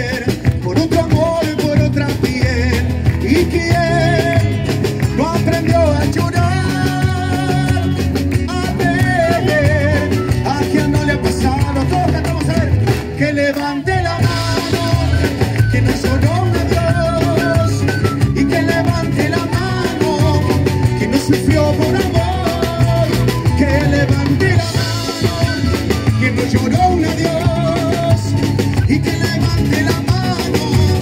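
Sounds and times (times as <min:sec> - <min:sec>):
drum kit: 0:00.0 - 0:31.0
electric bass: 0:00.0 - 0:31.0
wooden flute melody: 0:08.8 - 0:12.1, 0:14.2 - 0:31.0.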